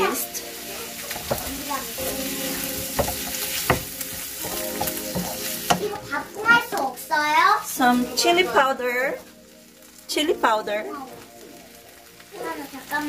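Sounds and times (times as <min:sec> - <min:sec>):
meat sizzling in a frying pan: 0:00.0 - 0:13.0
spatula knocking and scraping pan: 0:01.0 - 0:06.1.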